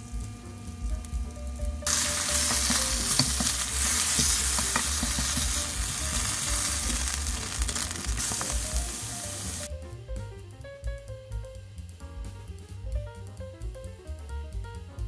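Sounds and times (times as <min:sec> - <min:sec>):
faint background music: 0:00.0 - 0:15.0
meat sizzling in a pan: 0:00.1 - 0:09.7.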